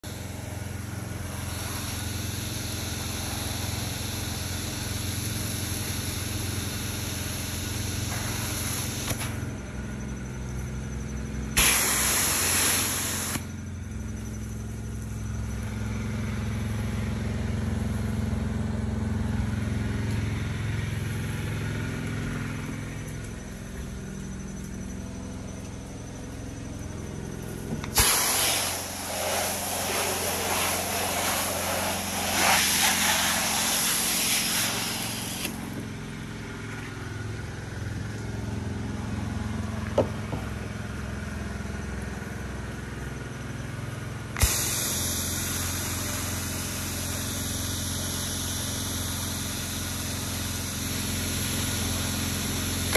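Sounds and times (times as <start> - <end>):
pump engine running: 0.0 - 52.9
water spraying from nozzle: 0.1 - 9.3, 11.6 - 13.4, 27.9 - 35.7, 44.4 - 52.9.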